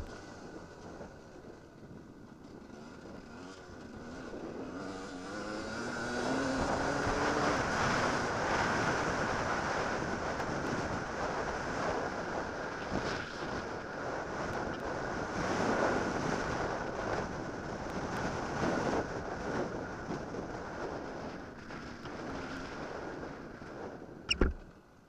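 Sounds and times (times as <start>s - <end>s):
motorcycle engine accelerating: 0.0s - 13.7s
wind rushing over microphone: 0.0s - 24.7s.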